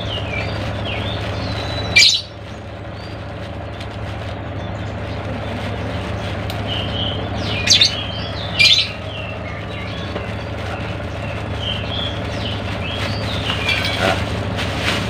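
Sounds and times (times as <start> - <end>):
plastic bag crinkling: 0.0 - 8.3, 8.9 - 15.0
small birds chirping: 0.0 - 14.3
steady low hum: 0.0 - 15.0.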